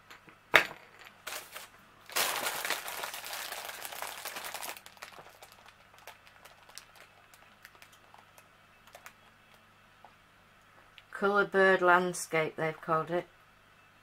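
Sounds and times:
paper rustling: 0:01.3 - 0:08.2.

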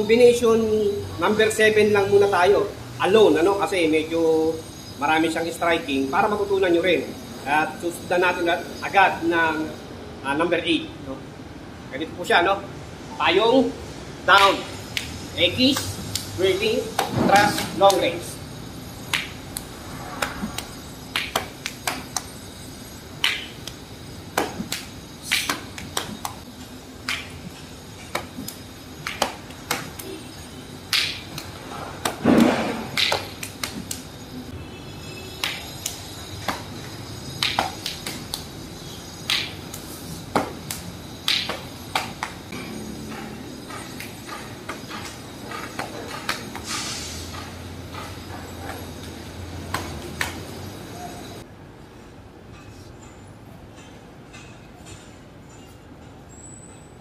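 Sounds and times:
rush of noise: 0:17.1 - 0:23.2.

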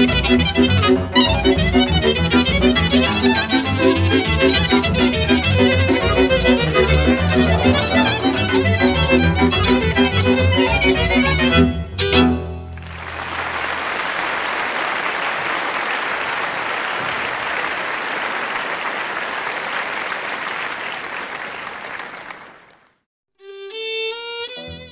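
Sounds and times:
instrumental music: 0:00.0 - 0:13.0, 0:23.4 - 0:24.9
audience applauding: 0:12.8 - 0:23.0.

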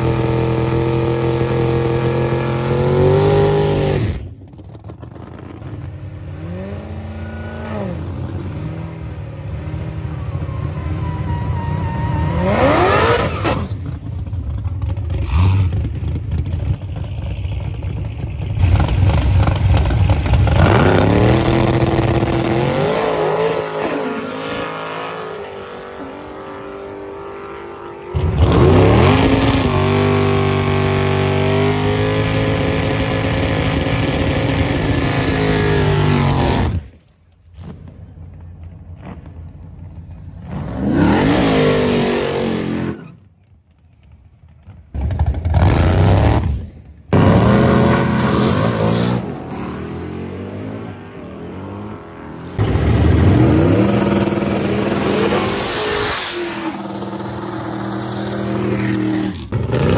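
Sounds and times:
racing cars accelerating: 0:05.8 - 0:13.9.

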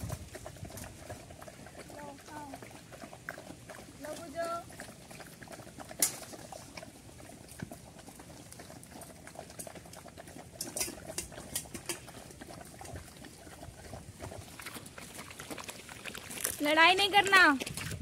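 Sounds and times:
dogs lapping food from steel plates: 0:00.0 - 0:18.0.

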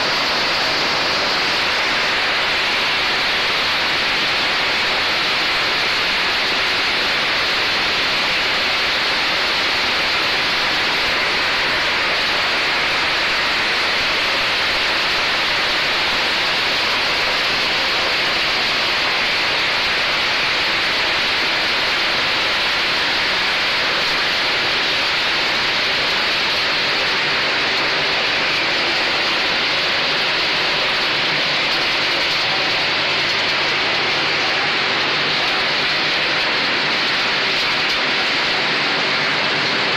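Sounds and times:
machine running with water rushing: 0:00.0 - 0:39.9.

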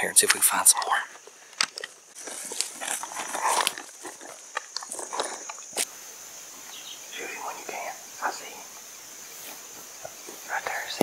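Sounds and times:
insects droning: 0:00.0 - 0:11.0
footsteps crunching through leaves: 0:02.2 - 0:05.9.

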